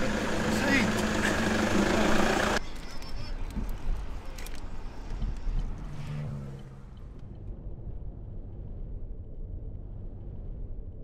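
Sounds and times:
car engine and road rumble: 0:00.0 - 0:11.0.

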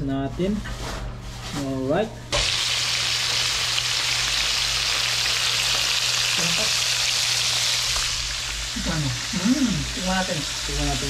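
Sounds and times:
fish sizzling in oil: 0:02.4 - 0:11.0.

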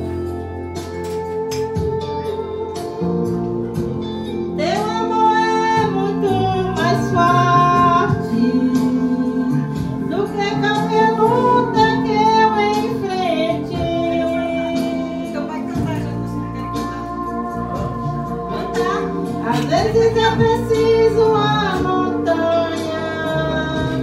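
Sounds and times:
recorded backing track: 0:00.0 - 0:24.0
woman singing karaoke: 0:00.0 - 0:24.0.

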